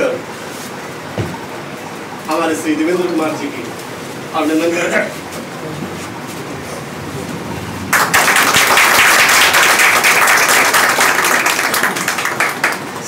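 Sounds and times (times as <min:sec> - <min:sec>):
people clapping: 0:06.0 - 0:13.0.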